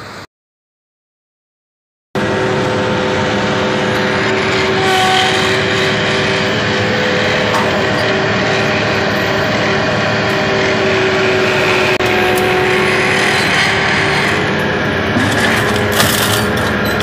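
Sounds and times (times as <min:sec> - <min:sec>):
loader engine running: 0:02.2 - 0:17.0
steady whine: 0:02.2 - 0:17.0.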